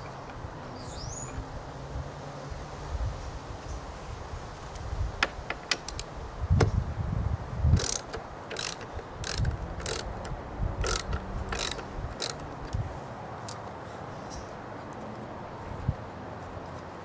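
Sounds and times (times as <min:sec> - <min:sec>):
ratchet wrench clicking: 0:07.8 - 0:12.8.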